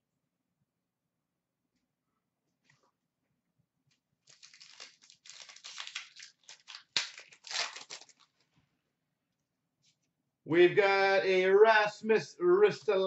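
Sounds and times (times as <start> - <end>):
foil wrapper crinkling: 4.2 - 8.5.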